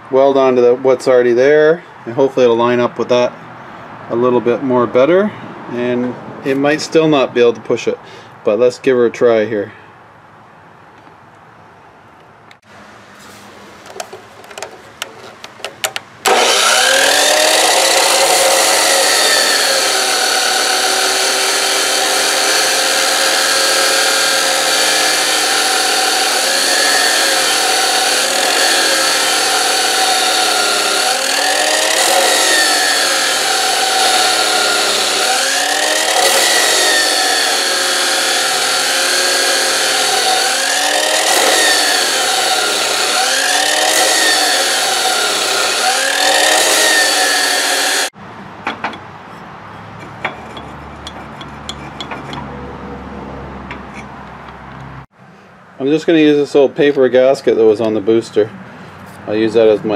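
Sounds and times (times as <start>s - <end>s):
chop saw cutting steel: 14.0s - 48.1s, 48.9s - 52.6s.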